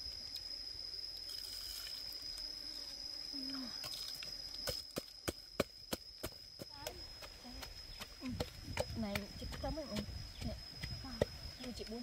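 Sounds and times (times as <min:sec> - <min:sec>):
wooden pestle pounding: 0:04.7 - 0:11.8.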